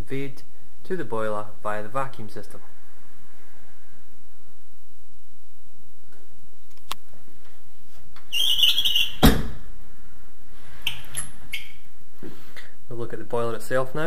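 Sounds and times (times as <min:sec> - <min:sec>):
short scraping squeak: 0:08.3 - 0:09.4.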